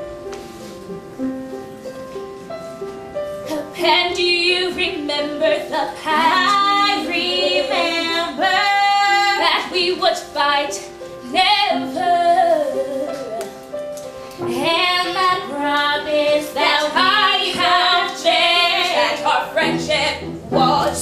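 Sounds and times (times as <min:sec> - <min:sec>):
instrumental accompaniment: 0:00.0 - 0:21.0
person singing with vibrato: 0:14.6 - 0:21.0.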